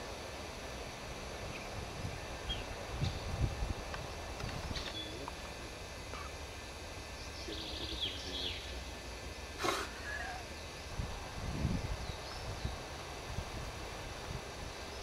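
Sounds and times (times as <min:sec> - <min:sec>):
steady low rumble: 0:00.0 - 0:15.0
bird chirps: 0:04.7 - 0:05.3, 0:07.2 - 0:08.8.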